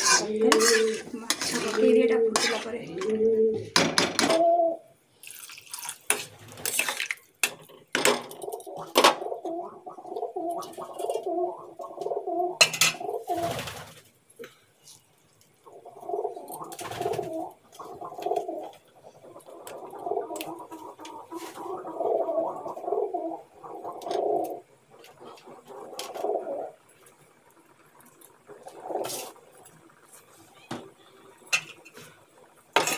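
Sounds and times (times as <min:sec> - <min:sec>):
pigeon cooing: 0:00.0 - 0:04.9, 0:08.4 - 0:13.9, 0:15.7 - 0:26.8.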